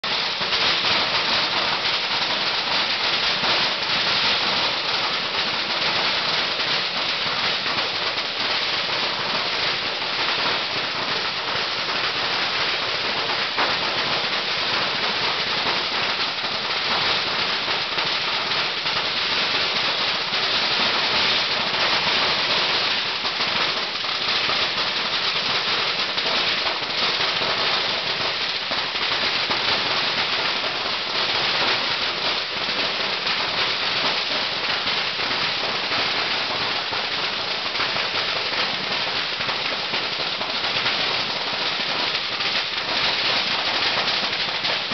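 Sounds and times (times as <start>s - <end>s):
firecrackers crackling: 0.0s - 44.9s.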